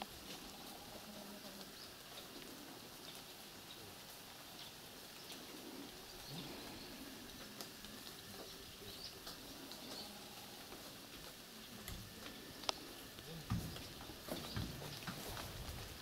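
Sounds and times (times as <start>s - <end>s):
faint bird chirps: 1.6s - 7.3s, 8.1s - 10.5s.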